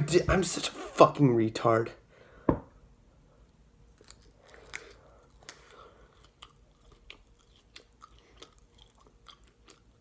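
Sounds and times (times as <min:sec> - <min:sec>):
chewing crunches: 0:03.9 - 0:10.0.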